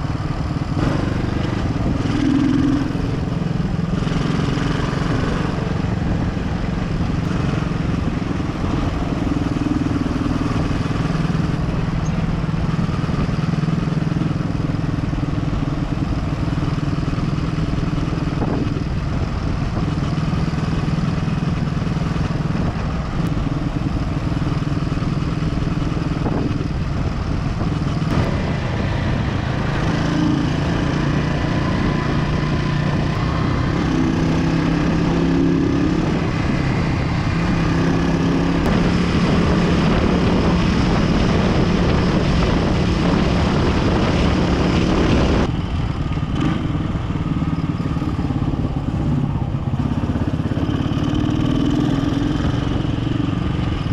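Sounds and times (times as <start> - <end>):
motorcycle engine running: 0.0 - 53.9
wind noise: 0.0 - 53.9.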